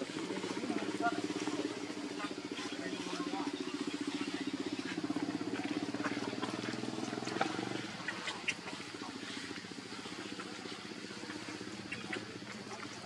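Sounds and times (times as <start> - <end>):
engine throbbing: 0.0 - 13.0.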